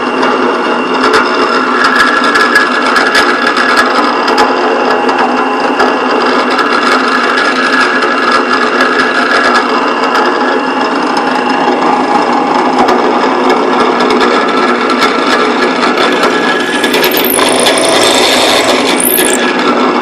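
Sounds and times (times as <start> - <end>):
drill press boring into wood: 16.0 - 19.5.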